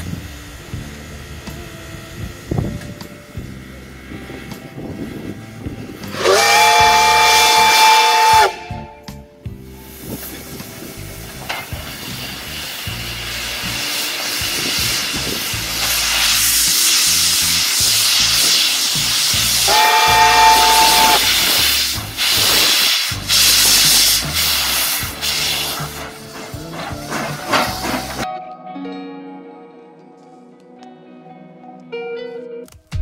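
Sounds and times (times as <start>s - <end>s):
steam hissing: 0.0s - 8.8s, 9.7s - 28.3s
steam locomotive whistle: 6.1s - 9.1s, 12.0s - 28.2s.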